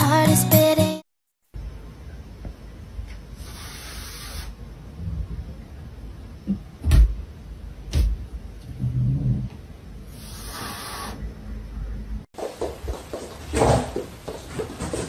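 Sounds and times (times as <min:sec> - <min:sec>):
low room noise: 0:01.5 - 0:15.0.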